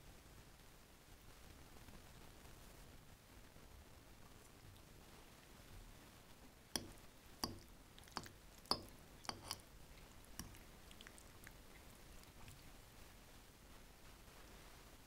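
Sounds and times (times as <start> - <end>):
utensils tapping dishware: 6.8 - 7.6, 8.7 - 9.6.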